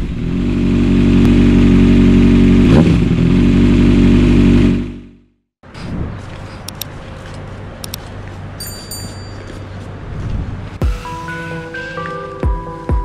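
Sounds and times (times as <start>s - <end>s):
motorcycle engine running: 0.0s - 5.4s.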